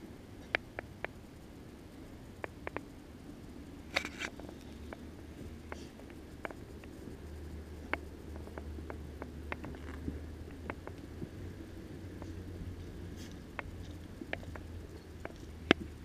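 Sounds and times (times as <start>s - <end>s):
low steady rumble: 0.0s - 16.0s
dogs' paws clicking: 12.2s - 16.0s.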